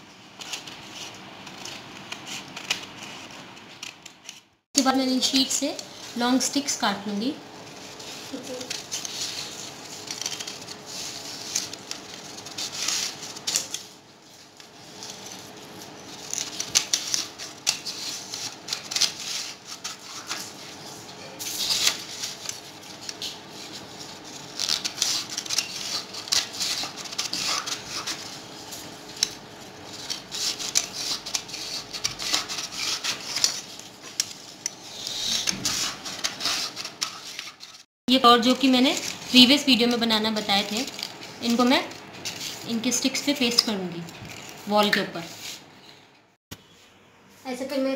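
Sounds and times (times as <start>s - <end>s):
scissors cutting paper: 0.3s - 4.5s, 7.8s - 14.0s, 14.6s - 45.6s.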